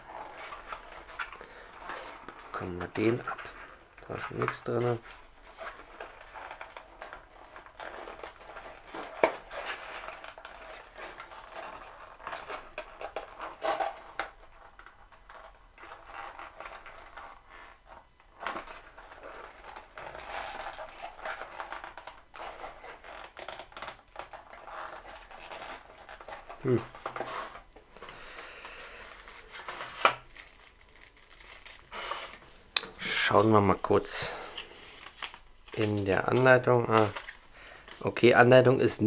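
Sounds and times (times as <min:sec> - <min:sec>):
cardboard packaging rustling: 0:00.0 - 0:38.3.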